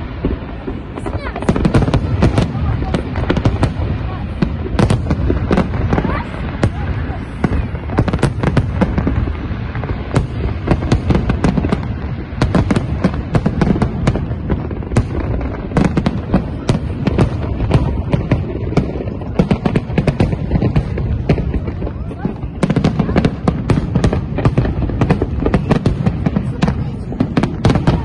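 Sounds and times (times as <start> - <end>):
fireworks bangs and crackles: 0.0 - 28.0
low booming: 0.0 - 28.0.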